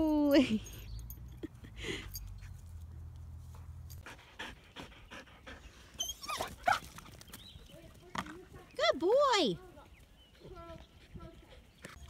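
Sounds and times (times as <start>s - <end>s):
dog panting: 3.5s - 6.1s, 10.2s - 12.0s.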